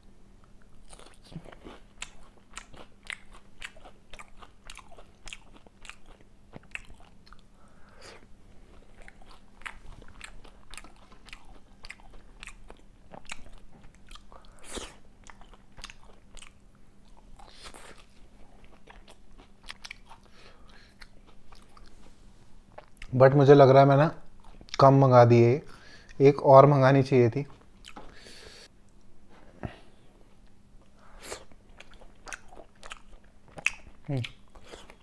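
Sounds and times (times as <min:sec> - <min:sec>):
chewing crispy fried fish: 0:00.4 - 0:07.6, 0:08.5 - 0:22.1, 0:30.4 - 0:35.0.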